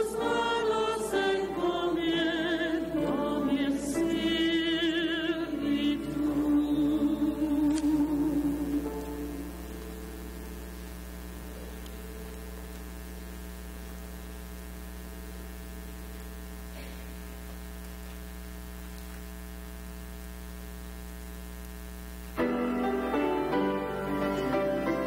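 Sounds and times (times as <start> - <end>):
electrical mains hum: 0.0 - 25.0
piano playing: 22.4 - 25.0.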